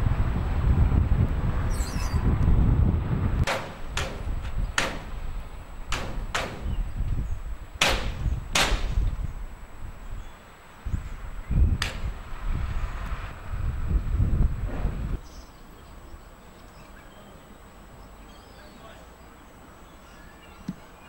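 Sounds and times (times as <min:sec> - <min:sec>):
hammer blows on metal: 0:03.4 - 0:05.2, 0:05.9 - 0:06.9, 0:07.8 - 0:09.1.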